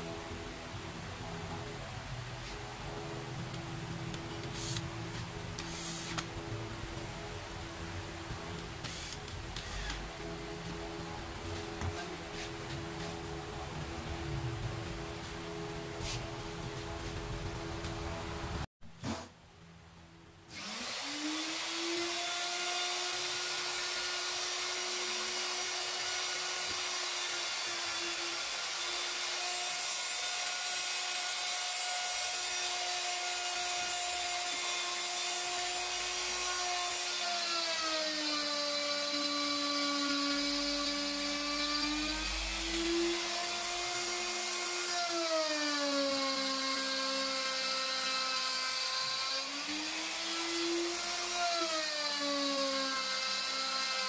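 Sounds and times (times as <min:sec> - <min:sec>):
electric router whining: 0:20.5 - 0:54.0.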